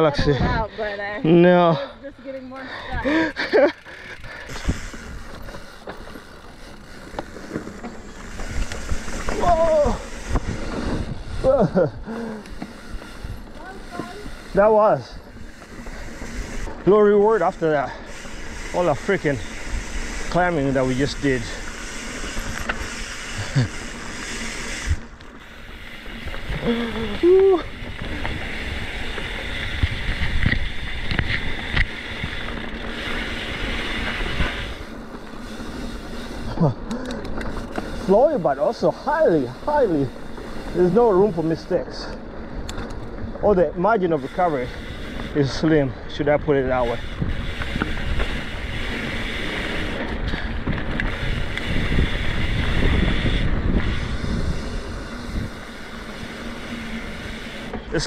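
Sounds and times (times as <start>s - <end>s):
bike tyres rumbling on dirt: 0.0s - 58.0s
wind rush on microphone: 8.3s - 12.2s, 26.2s - 37.2s, 46.0s - 57.6s.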